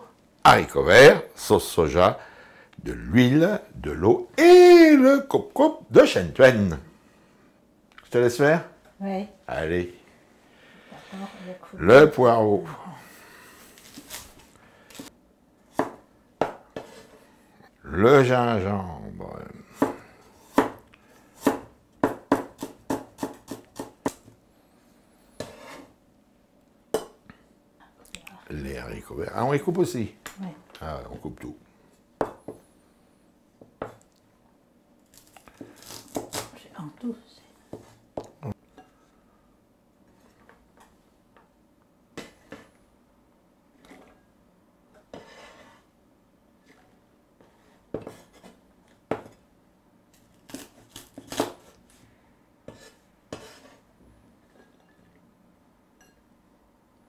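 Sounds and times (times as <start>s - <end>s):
cleaver chopping on wooden board: 20.6s - 20.8s.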